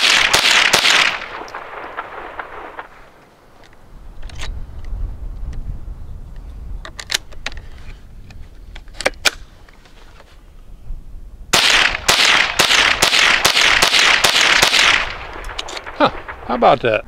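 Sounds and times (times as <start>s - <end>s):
rifle shots: 0.0s - 3.2s, 11.5s - 17.0s
gun handling clicks: 2.8s - 5.6s, 6.8s - 10.0s, 14.7s - 16.0s.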